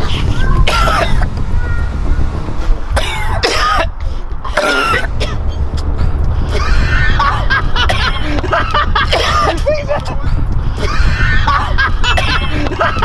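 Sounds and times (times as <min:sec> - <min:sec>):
wind on microphone: 0:00.0 - 0:13.0
men coughing: 0:00.7 - 0:01.3, 0:03.0 - 0:05.6, 0:06.4 - 0:13.0.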